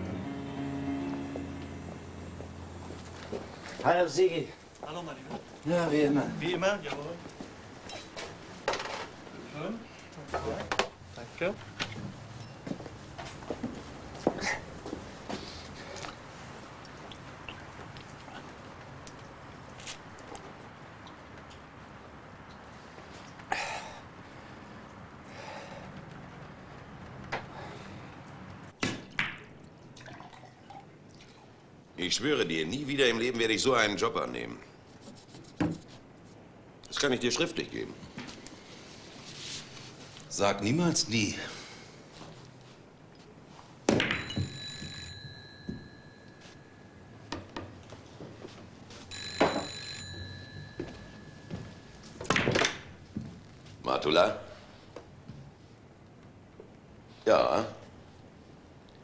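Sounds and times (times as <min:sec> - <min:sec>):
billiard balls colliding: 0:43.8 - 0:44.9, 0:50.8 - 0:53.1
telephone bell ringing: 0:44.1 - 0:47.3, 0:49.0 - 0:52.2.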